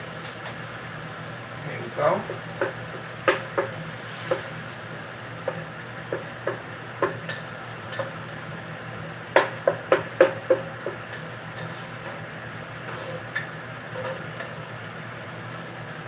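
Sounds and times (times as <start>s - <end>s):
steady low hum: 0.0s - 16.0s
spoon knocking against pot: 9.4s - 11.0s.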